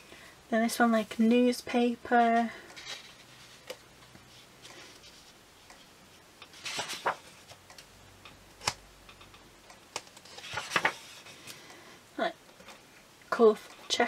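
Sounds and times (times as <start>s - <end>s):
paper rustling: 2.7s - 7.6s, 10.0s - 11.6s.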